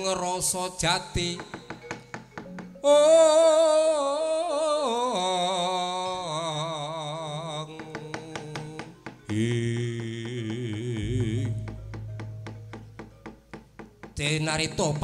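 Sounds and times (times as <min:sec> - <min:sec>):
gamelan: 0:00.0 - 0:15.0
sharp knocks: 0:00.8 - 0:02.8, 0:07.7 - 0:15.0
lower voice singing: 0:02.8 - 0:12.1.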